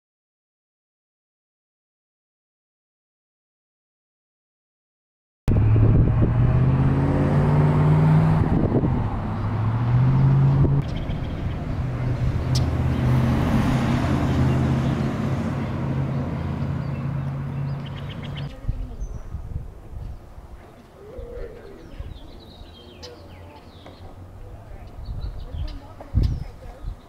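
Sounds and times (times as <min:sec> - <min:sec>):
vehicle engine running: 0:05.5 - 0:18.7.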